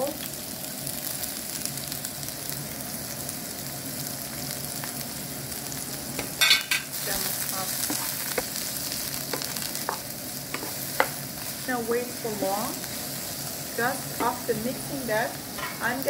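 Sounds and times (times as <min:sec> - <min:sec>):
vegetables sizzling in hot oil: 0:00.0 - 0:16.0
spoon tapping against pan: 0:09.3 - 0:11.2.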